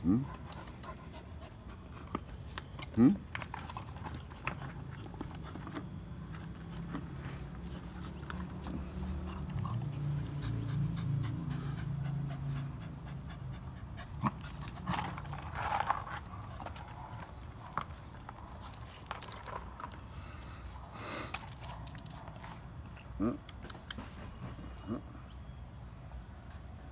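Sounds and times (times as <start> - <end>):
puppy panting: 0.2 - 25.1
rubber and claws scraping stone: 14.2 - 20.1.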